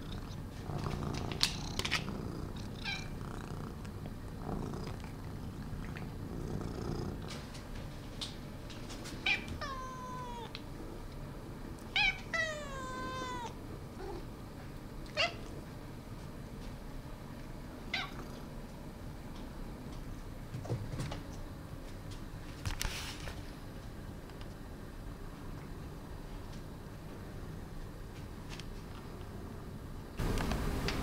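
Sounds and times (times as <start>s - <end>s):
cat meowing: 2.8s - 3.1s, 9.2s - 10.6s, 12.0s - 13.6s, 15.1s - 15.5s.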